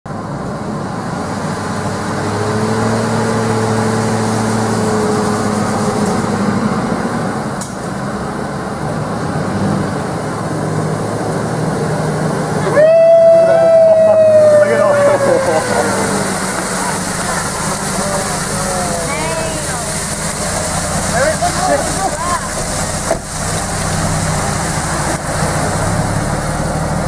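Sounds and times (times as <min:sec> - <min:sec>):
car engine running: 0:00.1 - 0:27.0
water washing: 0:00.7 - 0:27.0
held pitched note sliding lower: 0:12.6 - 0:21.1.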